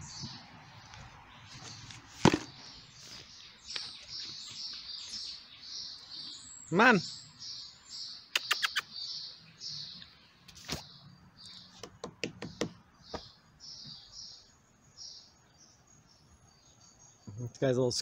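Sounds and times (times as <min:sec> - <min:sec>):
insect chirping: 0:13.1 - 0:17.7.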